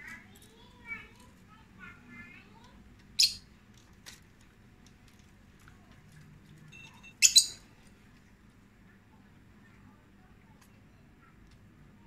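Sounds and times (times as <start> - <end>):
lovebirds chirping and shrieking: 3.2 - 3.5, 7.2 - 7.7.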